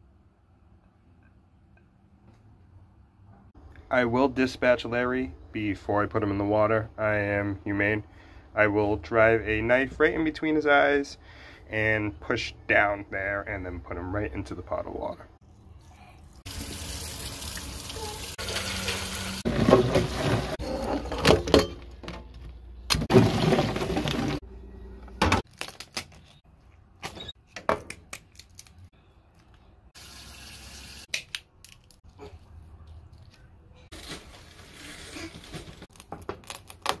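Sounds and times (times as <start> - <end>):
tap water running into sink: 16.5 - 20.5.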